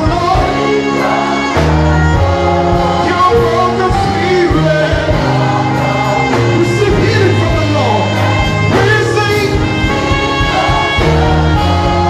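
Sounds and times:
held bass notes: 0.0 - 12.0
instrumental backing: 0.0 - 12.0
man singing into a microphone: 2.0 - 9.9.

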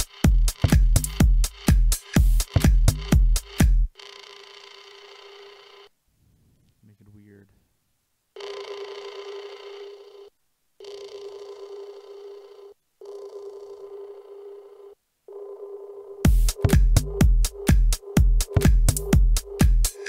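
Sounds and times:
four-on-the-floor kick drum: 0.0 - 3.9, 16.2 - 20.0
tech house loop: 0.0 - 3.9, 16.2 - 20.0.

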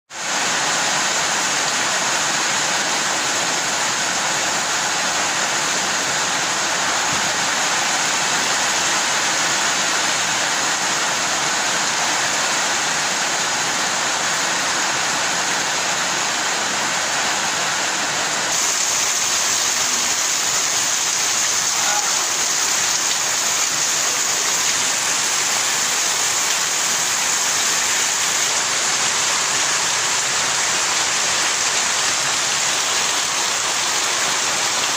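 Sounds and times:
heavy rain hissing: 0.2 - 34.9
water pouring off a roof: 18.4 - 34.9.

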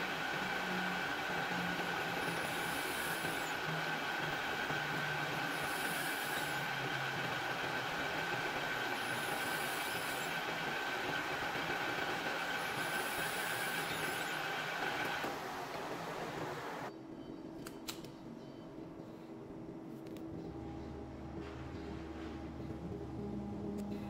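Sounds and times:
metal lathe whining: 0.0 - 16.9.

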